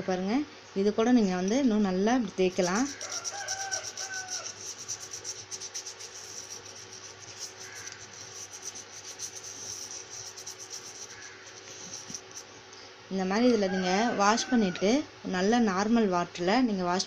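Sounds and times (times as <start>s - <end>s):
brush scrubbing burner cap: 2.5s - 12.5s.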